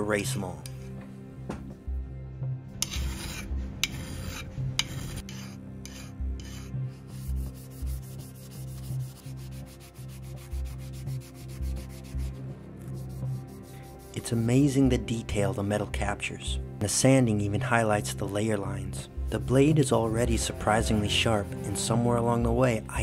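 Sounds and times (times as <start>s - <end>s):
sandpaper scraping metal blade: 2.8s - 14.4s.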